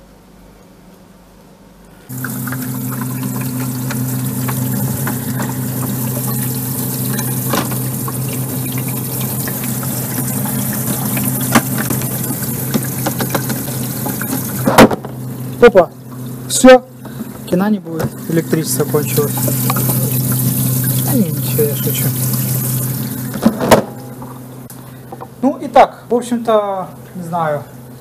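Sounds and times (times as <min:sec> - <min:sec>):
water spraying and splashing: 0:02.1 - 0:17.4, 0:18.1 - 0:23.5
water pump humming: 0:02.1 - 0:28.0.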